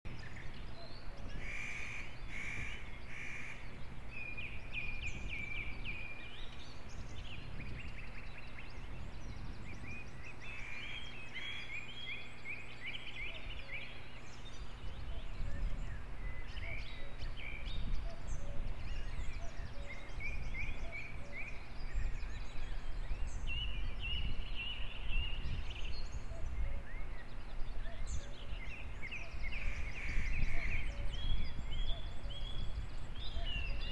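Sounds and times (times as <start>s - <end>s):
ravens calling: 0.7s - 4.1s, 10.3s - 12.2s.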